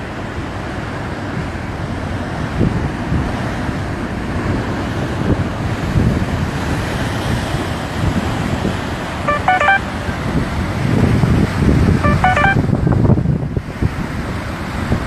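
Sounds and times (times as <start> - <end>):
rushing water: 0.0 - 15.0
wind buffeting microphone: 1.2 - 9.2, 10.0 - 12.0, 12.6 - 15.0.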